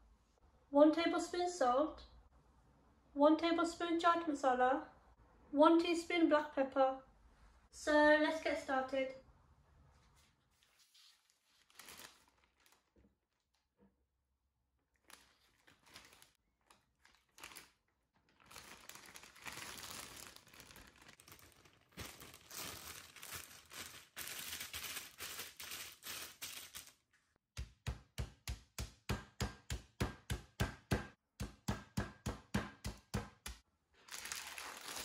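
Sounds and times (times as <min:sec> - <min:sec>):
plastic bag crinkling: 0:11.4 - 0:13.0, 0:15.0 - 0:27.1, 0:34.0 - 0:35.0
meat pounded on wooden board: 0:27.6 - 0:33.6.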